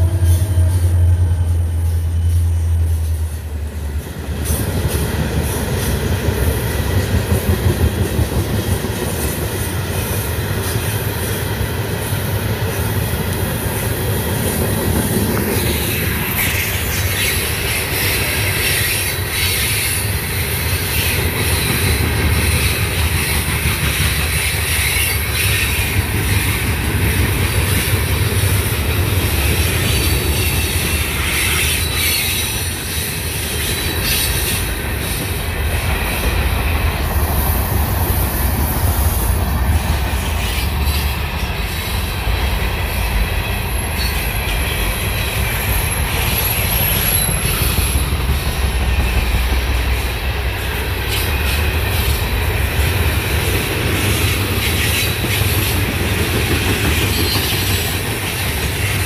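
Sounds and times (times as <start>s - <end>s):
freight train wheels rumbling: 0.0s - 59.0s
train wheels squealing: 0.0s - 59.0s.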